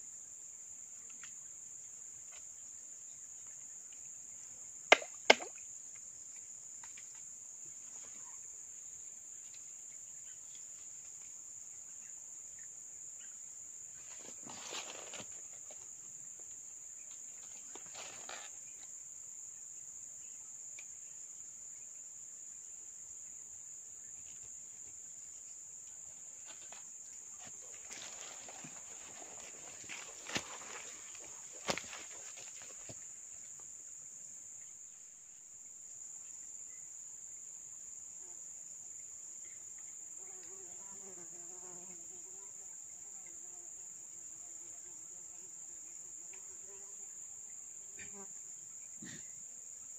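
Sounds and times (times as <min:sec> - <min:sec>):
brief rustle: 0:14.1 - 0:15.8.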